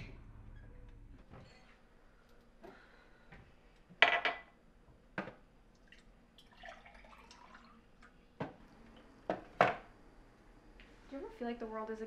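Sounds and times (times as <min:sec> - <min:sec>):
water pouring into glass: 0:05.8 - 0:08.0.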